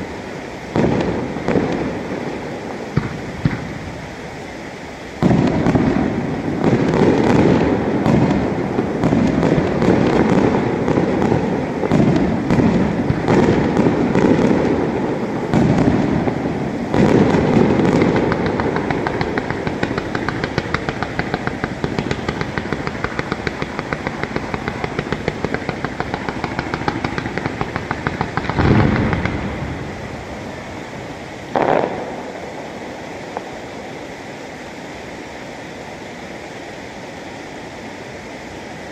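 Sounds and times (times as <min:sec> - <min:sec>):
fast run of firework pops: 0:00.7 - 0:02.1, 0:02.9 - 0:03.8, 0:05.2 - 0:29.8, 0:31.5 - 0:32.4
fireworks shell bursts and bangs: 0:17.0 - 0:29.6.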